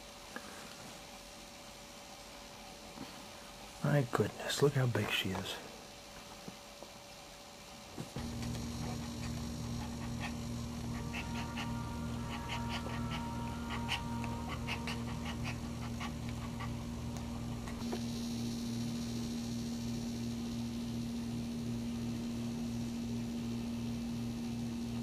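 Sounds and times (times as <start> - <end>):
steady low hum: 0.0 - 25.0
dog panting: 8.2 - 17.8.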